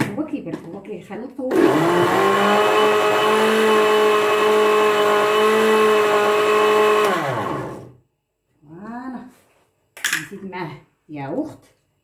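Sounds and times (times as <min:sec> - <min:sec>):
electric blender running: 0:01.5 - 0:07.9.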